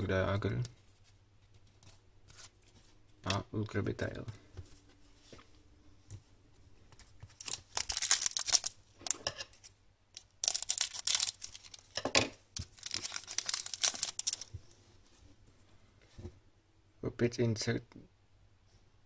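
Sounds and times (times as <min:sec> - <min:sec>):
wrapper tearing and crinkling: 0:07.3 - 0:09.2, 0:10.2 - 0:12.0, 0:12.6 - 0:14.5.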